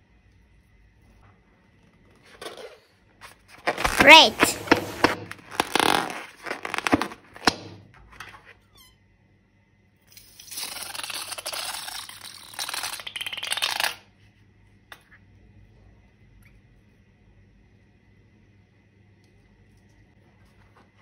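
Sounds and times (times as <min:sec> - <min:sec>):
balloon and slime crinkling: 0:03.6 - 0:07.8.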